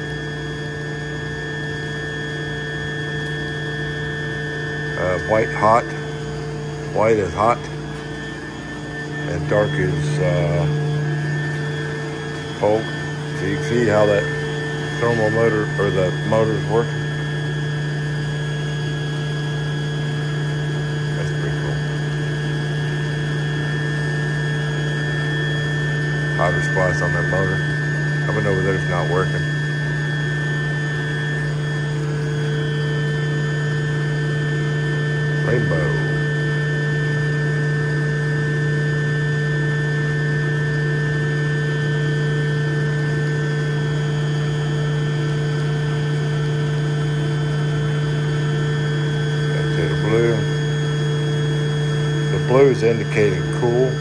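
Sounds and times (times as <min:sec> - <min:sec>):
water pump motor humming: 0:00.0 - 0:54.0.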